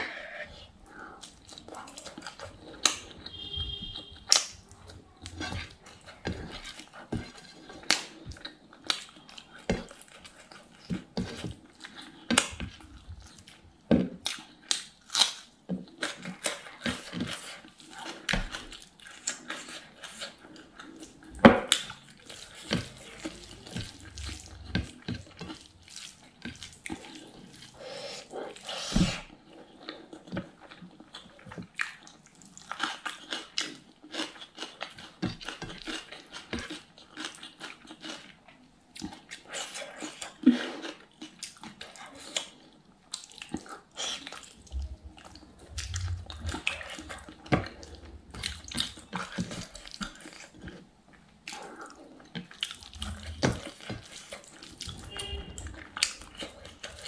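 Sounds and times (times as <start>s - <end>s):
wet chewing and lip smacks: 29.8s - 57.0s
fingers squishing sticky food: 39.0s - 57.0s.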